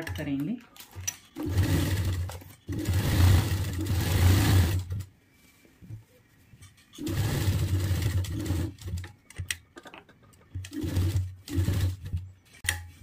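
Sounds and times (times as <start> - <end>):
sewing machine stitching: 1.4 - 5.0, 7.0 - 9.0, 10.7 - 12.2.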